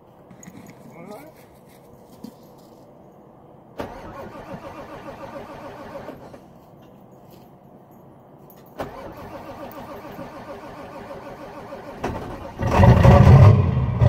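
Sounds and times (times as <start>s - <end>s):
diesel engine starter cranking: 3.8s - 6.5s, 8.8s - 14.0s.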